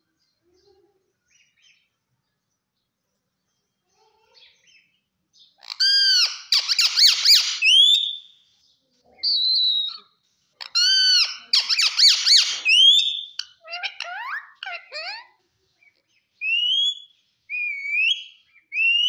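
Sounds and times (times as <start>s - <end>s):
parakeet squawking call: 5.6s - 8.2s, 10.6s - 15.3s.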